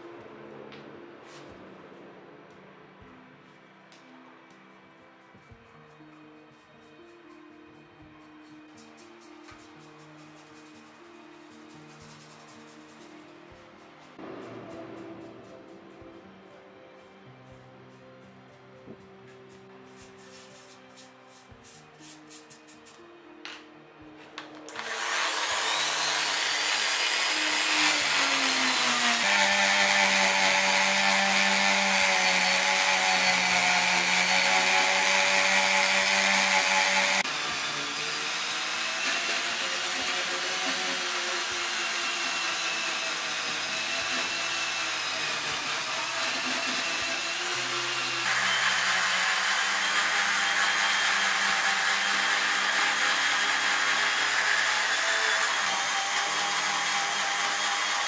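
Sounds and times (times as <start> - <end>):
rotary tool whining on metal: 24.7 - 58.0.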